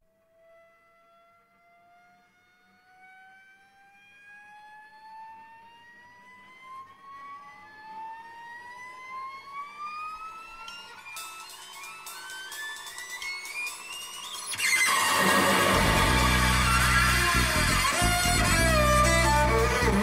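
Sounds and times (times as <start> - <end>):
sustained tone gliding upward: 9.9 - 20.0.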